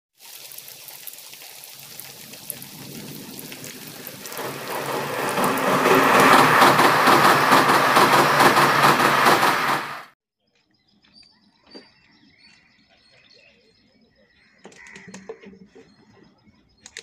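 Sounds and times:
train crossing a steel bridge: 3.4s - 10.1s.

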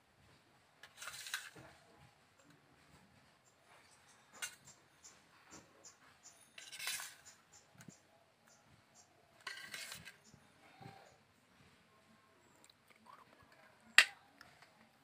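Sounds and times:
metal spatula scraping steel plates: 0.8s - 1.6s, 4.3s - 4.8s, 6.4s - 7.4s, 9.4s - 10.4s.

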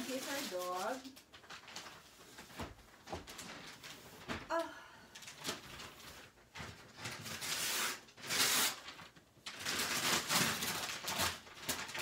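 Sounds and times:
wrapping paper tearing and crumpling: 0.0s - 4.5s, 5.2s - 12.0s.

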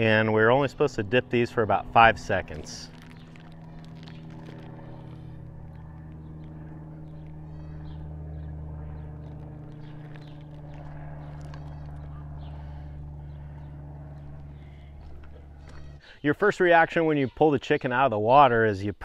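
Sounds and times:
faint animal calls: 7.1s - 8.1s, 9.3s - 16.2s.

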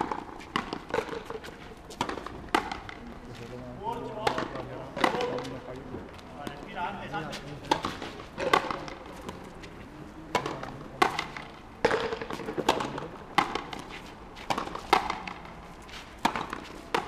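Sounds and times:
ball struck with rackets: 0.0s - 3.0s, 4.2s - 5.5s, 7.6s - 9.4s, 10.3s - 15.5s, 16.2s - 17.0s.

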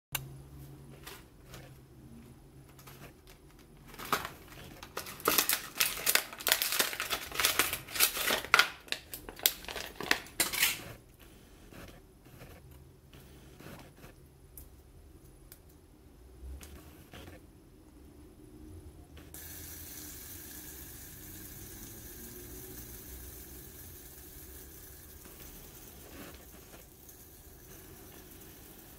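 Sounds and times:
plastic packaging crinkling: 3.2s - 10.8s.

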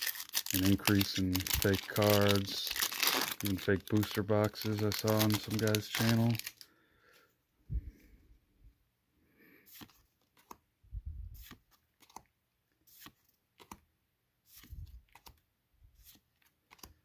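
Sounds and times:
cards flipped and sliding: 9.7s - 10.6s, 11.4s - 15.4s, 16.0s - 17.0s.

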